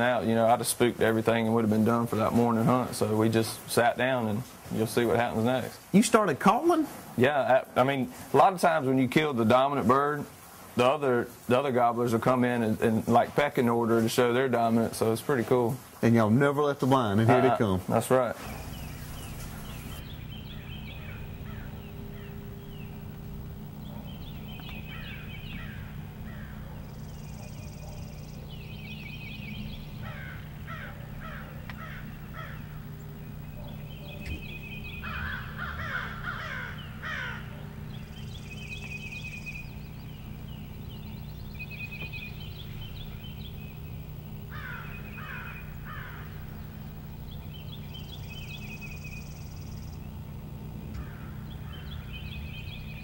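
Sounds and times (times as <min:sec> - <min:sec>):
high chirping: 0:18.4 - 0:53.0
turkeys gobbling: 0:23.9 - 0:28.6, 0:29.8 - 0:40.4.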